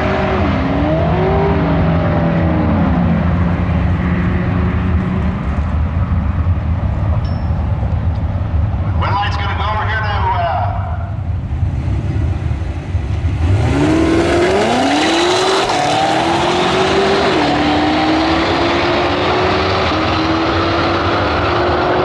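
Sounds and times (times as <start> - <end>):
racing car engine accelerating: 0.0 - 5.6, 11.5 - 22.0.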